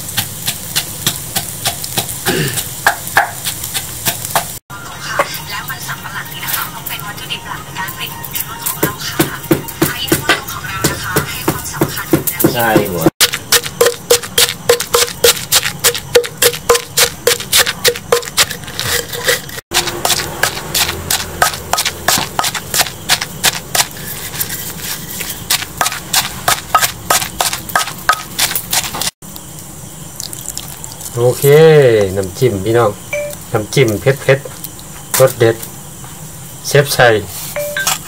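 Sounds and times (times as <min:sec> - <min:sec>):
pestle pounding in mortar: 0:00.0 - 0:04.6, 0:08.6 - 0:29.2.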